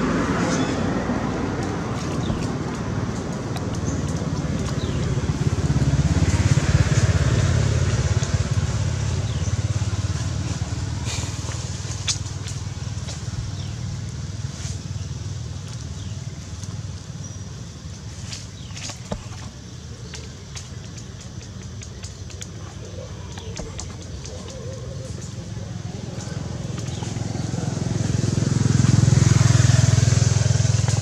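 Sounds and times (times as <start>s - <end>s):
vehicle engine rumble: 0.0s - 31.0s
faint sharp clicks: 20.1s - 25.4s.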